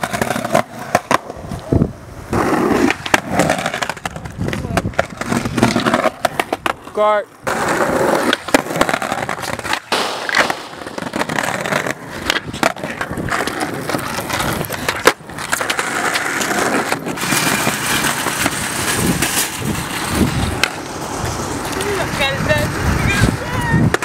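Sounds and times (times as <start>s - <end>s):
skateboard clacks: 0.0s - 1.7s, 2.3s - 24.0s
skateboard wheels rolling on asphalt: 0.0s - 24.0s.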